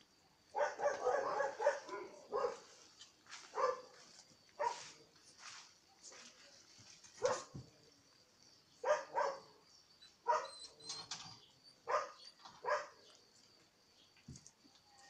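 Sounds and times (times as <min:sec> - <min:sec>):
puppies yipping and barking: 0:10.0 - 0:13.0.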